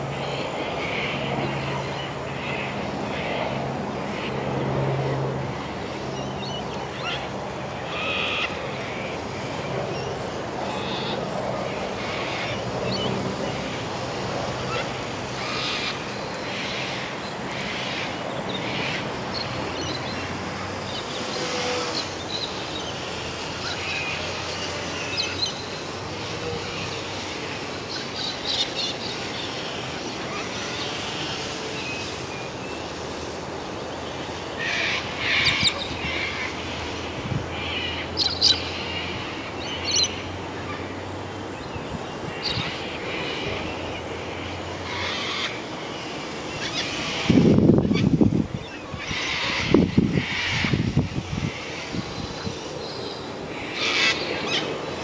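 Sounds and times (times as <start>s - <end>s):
birds chirping: 0.0s - 55.0s
wind on microphone: 46.9s - 52.8s.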